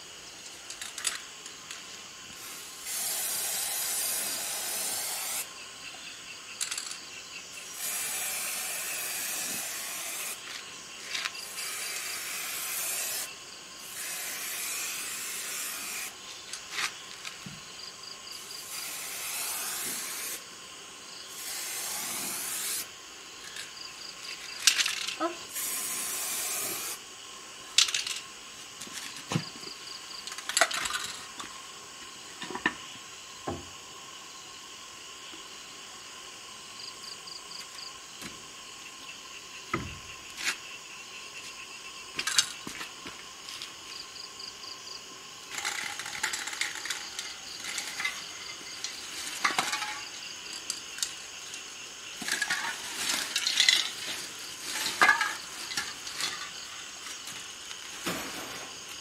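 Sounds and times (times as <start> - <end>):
rustling and clattering: 45.5 - 50.2, 52.2 - 58.8.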